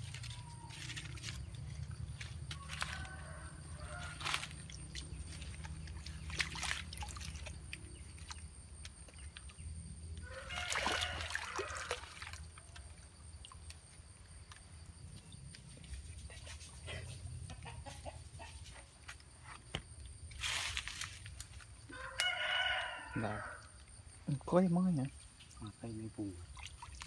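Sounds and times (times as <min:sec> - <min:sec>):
fish thrashing in water: 0:00.0 - 0:14.6, 0:26.4 - 0:27.0
splashing in a shallow stream: 0:00.0 - 0:16.8, 0:20.2 - 0:22.7, 0:25.1 - 0:27.0.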